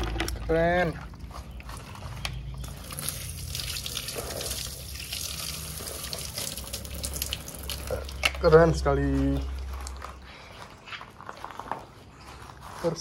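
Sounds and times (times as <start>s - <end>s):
water splashing over plastic toys: 2.6s - 8.5s.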